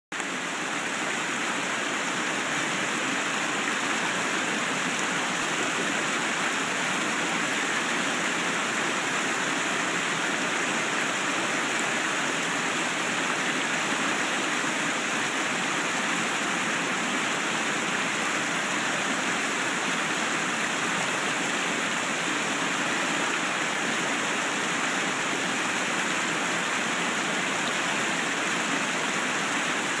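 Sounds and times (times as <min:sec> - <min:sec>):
stream rushing over boulders: 0:00.1 - 0:30.0.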